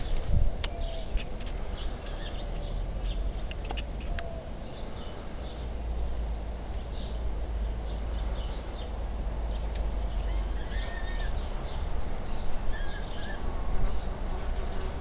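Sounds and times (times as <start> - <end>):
steady low rumble: 0.0 - 14.7
falcon chicks chittering calls: 9.5 - 14.0.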